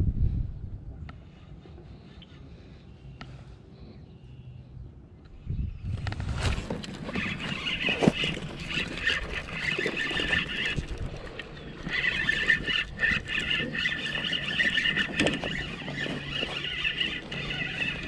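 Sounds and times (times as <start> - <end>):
fishing reel whirring: 7.0 - 18.0.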